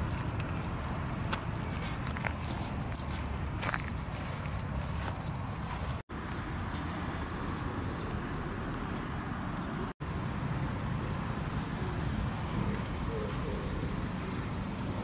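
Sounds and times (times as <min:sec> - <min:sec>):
outdoor background rumble: 0:00.0 - 0:15.0.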